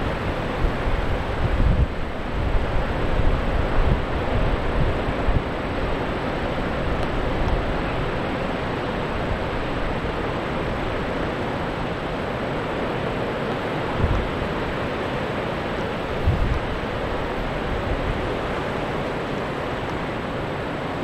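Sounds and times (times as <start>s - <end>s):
wind buffeting microphone: 0.0s - 12.2s, 13.8s - 14.9s, 15.6s - 18.5s
ocean surf breaking: 0.0s - 21.0s.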